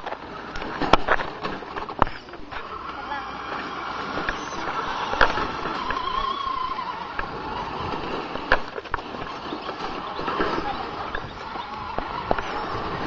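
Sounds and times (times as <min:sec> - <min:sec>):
toy truck motor whining: 0:02.2 - 0:13.0.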